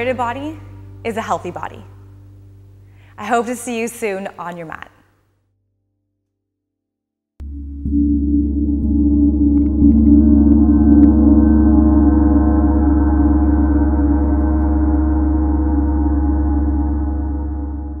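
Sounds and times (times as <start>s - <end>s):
large gong ringing: 7.4s - 18.0s.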